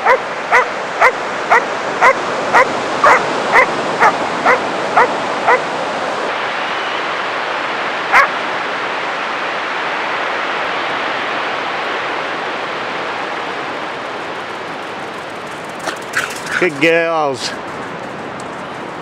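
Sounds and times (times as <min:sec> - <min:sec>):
dog barking: 0:00.0 - 0:05.7, 0:08.1 - 0:08.4
surf rushing: 0:00.0 - 0:19.0.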